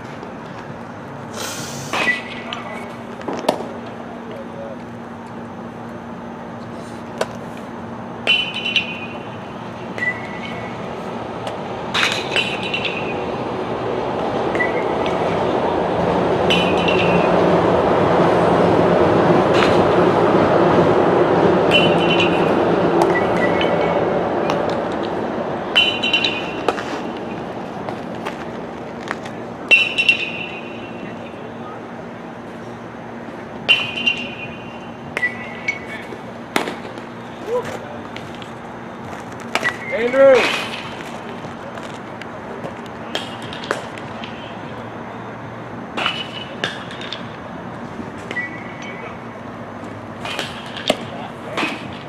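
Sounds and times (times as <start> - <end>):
outdoor background noise: 0.0 - 52.0
sharp metallic ping: 16.5 - 17.2, 25.8 - 26.6.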